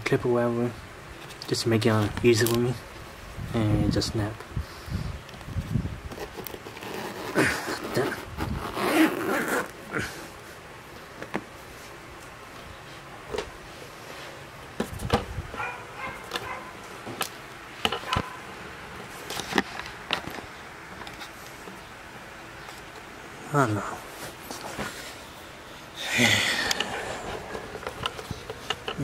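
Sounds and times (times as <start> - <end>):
zipper rasping open: 6.1 - 10.0
clicks and handling knocks: 26.7 - 29.0.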